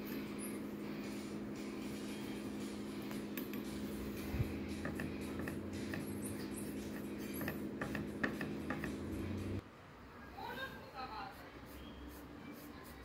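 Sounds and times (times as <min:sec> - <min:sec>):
steady low hum: 0:00.0 - 0:10.0
paintbrush squeaking on canvas: 0:11.3 - 0:13.0.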